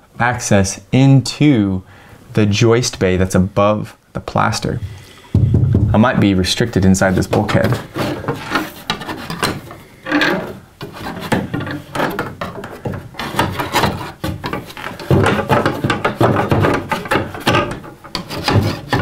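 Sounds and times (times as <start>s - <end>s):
fish stick scraping inside wall: 6.2s - 19.0s.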